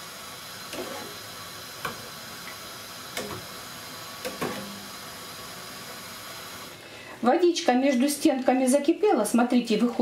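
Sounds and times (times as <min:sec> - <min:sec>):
gas burner hiss: 0:00.0 - 0:07.2.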